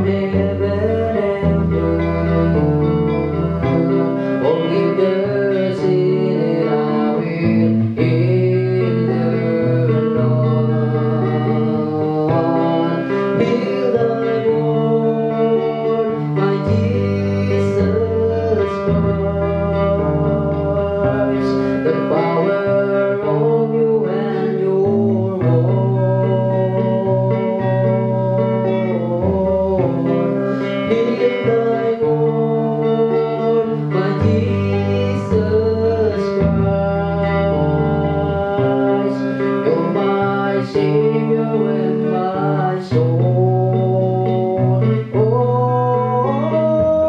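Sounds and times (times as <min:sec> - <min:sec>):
electric guitar bending notes: 0:00.0 - 0:47.0
low bass notes: 0:31.0 - 0:38.9.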